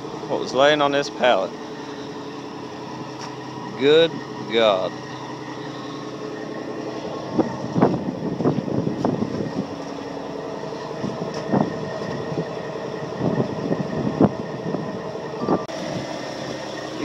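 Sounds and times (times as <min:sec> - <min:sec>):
mechanical hum with held tones: 0:00.0 - 0:17.0
footsteps on gravel: 0:06.7 - 0:12.3.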